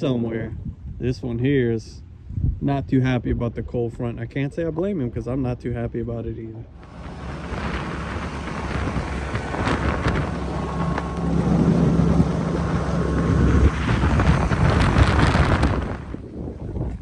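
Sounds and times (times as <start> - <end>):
wind rushing over microphone: 0.0 - 4.2, 6.6 - 17.0
steady low hum: 6.6 - 17.0
boat motor running: 6.7 - 16.3.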